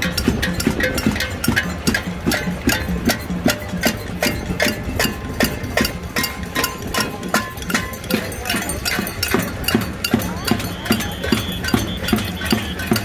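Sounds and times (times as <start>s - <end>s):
pots and pans being banged: 0.0s - 13.0s.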